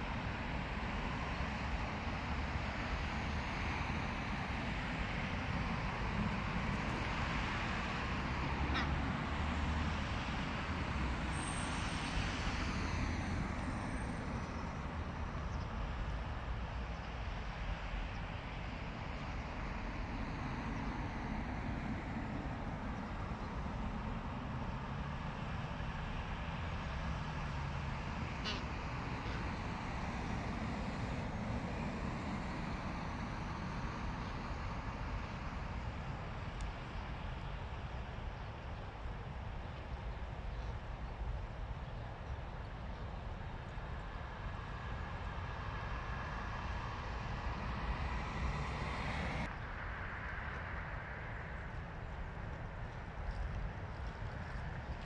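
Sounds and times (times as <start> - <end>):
distant road traffic hum: 0.0 - 55.0.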